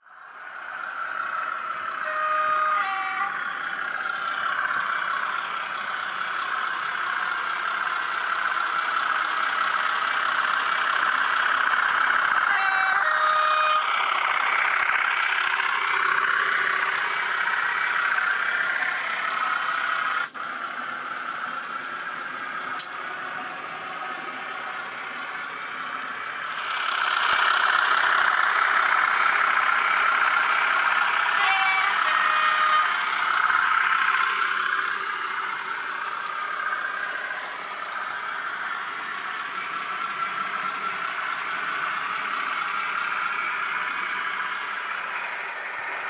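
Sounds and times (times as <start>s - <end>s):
model train whirring: 0.0s - 46.0s
sharp click: 22.8s - 23.0s.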